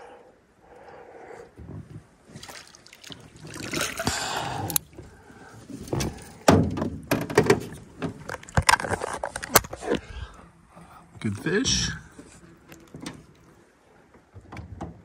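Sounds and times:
water splashing: 2.3 - 6.5
net knocking against metal boat: 5.9 - 8.3.

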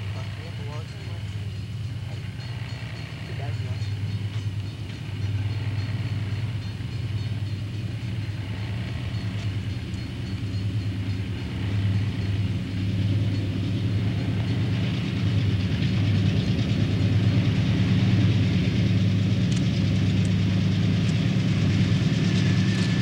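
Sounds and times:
diesel locomotive engines droning: 0.0 - 23.0.

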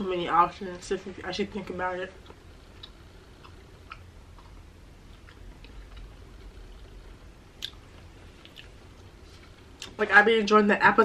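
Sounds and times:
low room hum: 0.0 - 11.0
faint chewing: 2.1 - 10.0.

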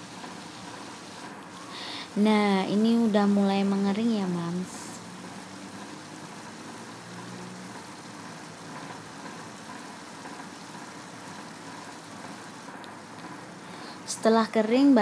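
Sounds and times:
fish sizzling in oil: 0.0 - 14.4.

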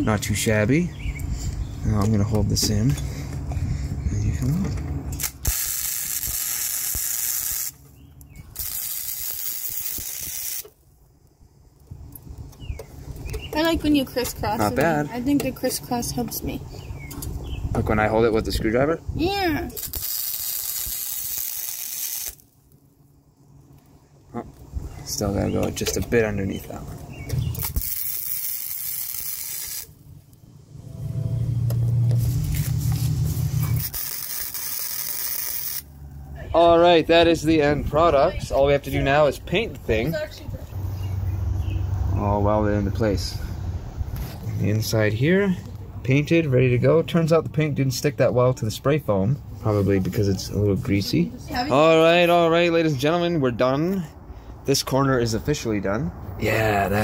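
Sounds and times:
low steady hum: 0.0 - 57.0
welder arc crackling hiss: 5.2 - 7.8, 8.5 - 10.8, 19.5 - 22.6, 27.6 - 30.0, 32.5 - 35.9.

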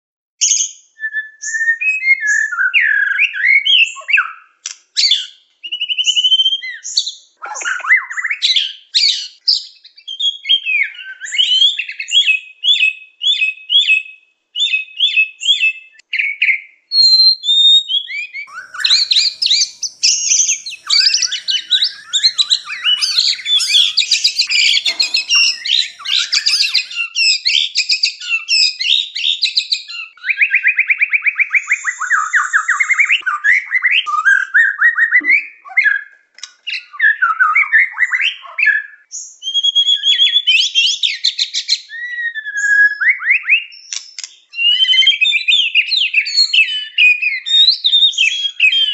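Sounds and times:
songbird singing whistles: 0.4 - 4.1, 18.5 - 27.1, 31.6 - 33.2.

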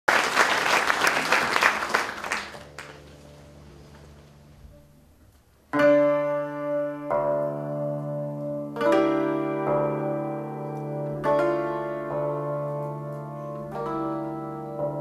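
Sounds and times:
audience applause: 0.0 - 3.2
cimbalom chords ringing: 2.6 - 15.0.

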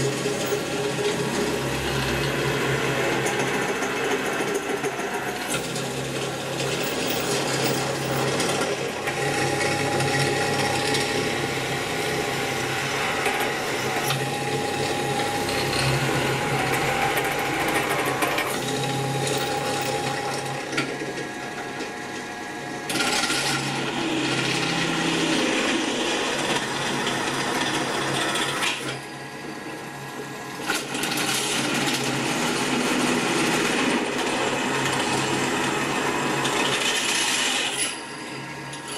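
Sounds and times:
drill grinding into metal: 0.0 - 20.7, 30.6 - 38.9
drill press motor hum: 0.0 - 38.9.

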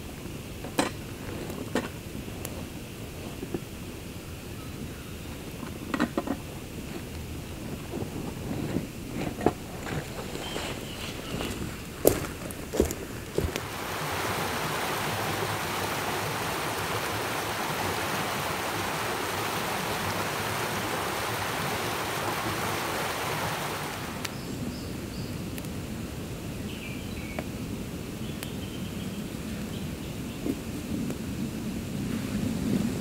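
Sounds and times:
creek water over stones: 0.0 - 24.4.

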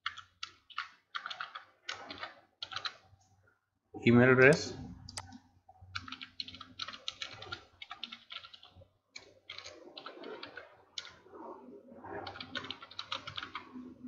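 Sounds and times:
keyboard typing: 0.0 - 3.1, 5.1 - 11.2, 12.2 - 13.8.

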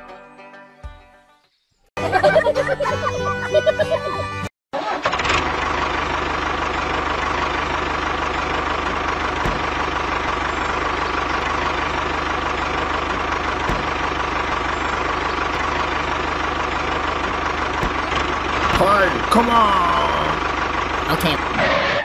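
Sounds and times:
tractor engine idling: 4.8 - 22.0.

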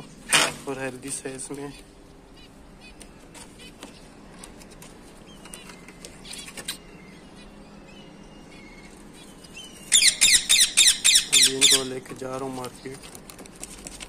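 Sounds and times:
parakeet chicks chirping: 1.3 - 13.3
harsh repeated squawking: 9.9 - 11.9.

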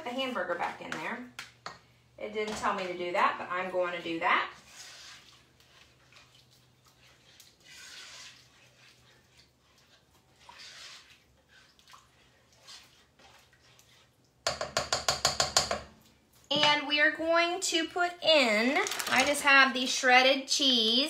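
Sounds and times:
spoon scraping and stirring in pot: 0.0 - 16.8.

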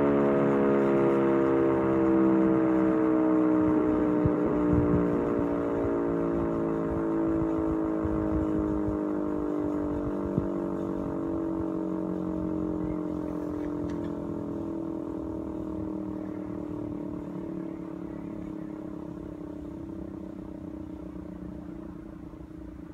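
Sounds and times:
warning siren winding down: 0.0 - 22.9.

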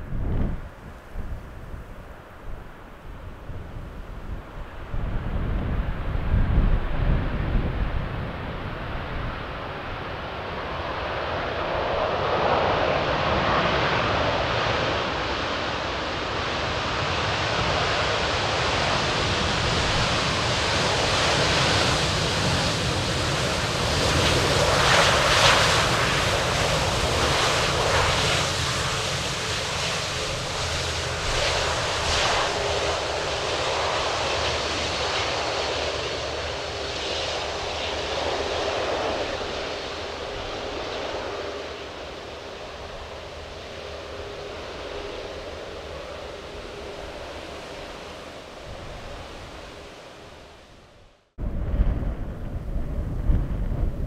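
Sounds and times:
airliner engines rushing: 0.0 - 54.0.

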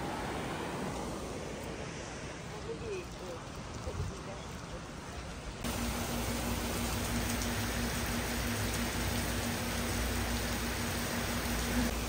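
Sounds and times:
rain falling on trees: 2.6 - 12.0.

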